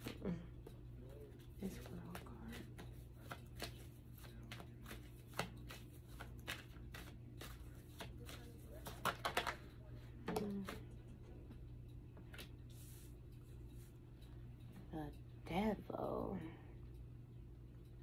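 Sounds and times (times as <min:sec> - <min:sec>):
faint low hum: 0:00.0 - 0:18.0
cards being shuffled: 0:01.4 - 0:09.7.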